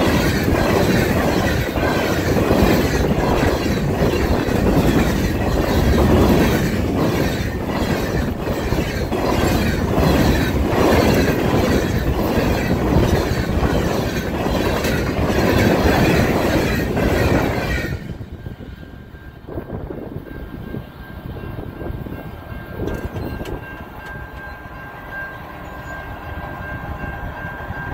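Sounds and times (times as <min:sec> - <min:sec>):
train wheels clattering over rails: 0:00.0 - 0:18.2, 0:22.6 - 0:24.6.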